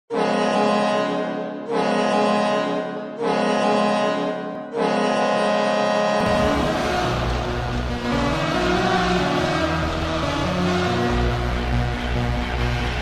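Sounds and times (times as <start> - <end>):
arena goal horn blasts: 0.1 - 9.7.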